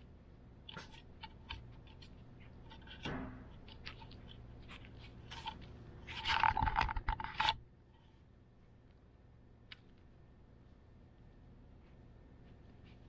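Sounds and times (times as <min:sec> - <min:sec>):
puppy scratching and scraping: 0:00.7 - 0:07.6.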